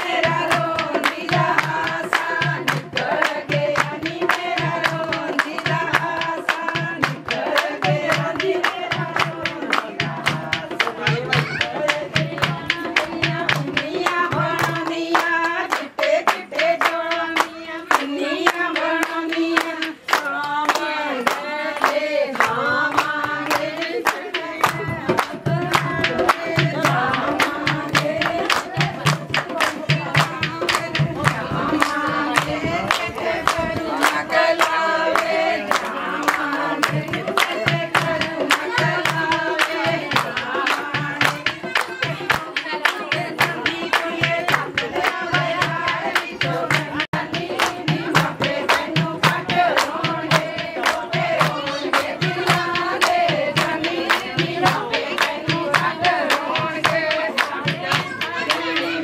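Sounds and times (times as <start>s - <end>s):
voices singing: 0.0s - 59.0s
pulsing low drum: 24.8s - 34.0s.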